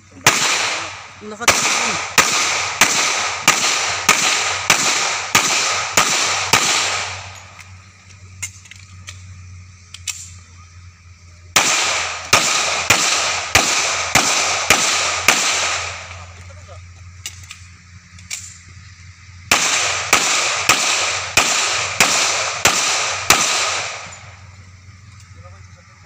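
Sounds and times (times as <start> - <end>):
pistol shots: 0.2 - 7.7, 11.6 - 16.3, 19.5 - 24.3.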